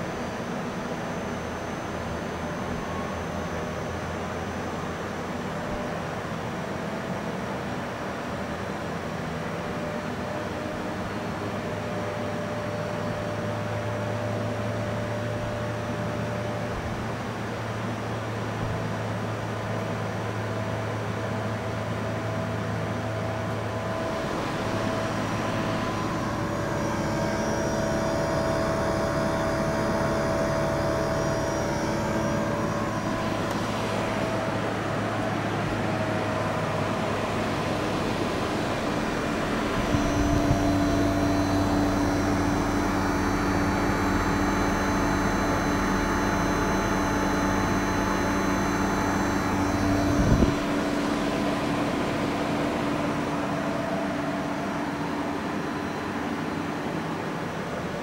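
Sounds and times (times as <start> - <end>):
compressor hum with held tones: 0.0 - 58.0
fan airflow rushing: 23.2 - 55.3.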